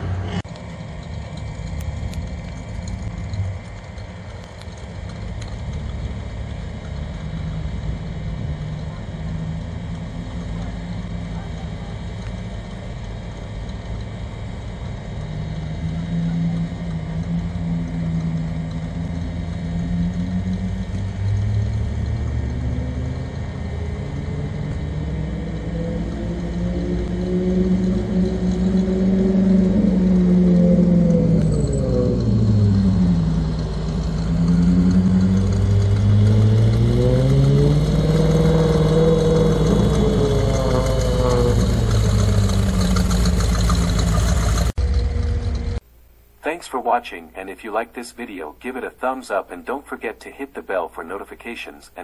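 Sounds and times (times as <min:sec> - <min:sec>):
pickup truck engine running: 0:00.0 - 0:22.6, 0:29.4 - 0:45.9.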